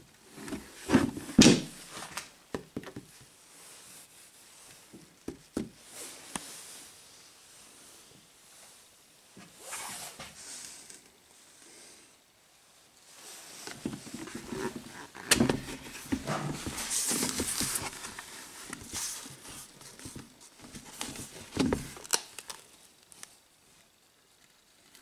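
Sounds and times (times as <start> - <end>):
rustling: 0.1 - 2.4, 12.7 - 25.0.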